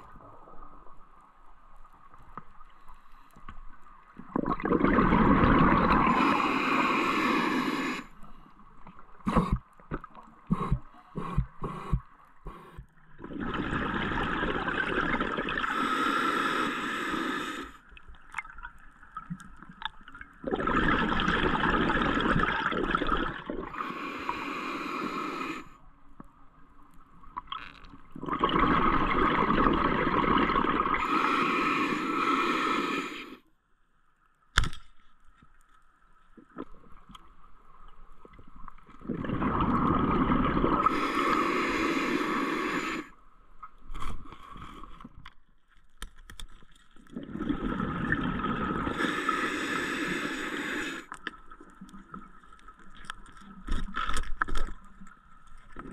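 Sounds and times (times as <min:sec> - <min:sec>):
underwater air bubbles gurgling: 0:04.1 - 0:08.1, 0:09.1 - 0:17.7, 0:18.3 - 0:25.7, 0:27.4 - 0:33.4, 0:38.2 - 0:43.1, 0:47.1 - 0:53.1
sharp underwater clicks: 0:34.5 - 0:35.2.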